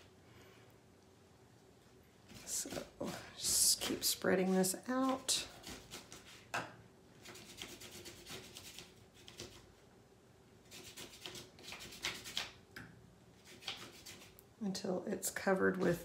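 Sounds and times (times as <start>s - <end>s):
paintbrush scratching on paper: 7.2s - 9.6s, 10.7s - 12.4s, 13.4s - 14.4s.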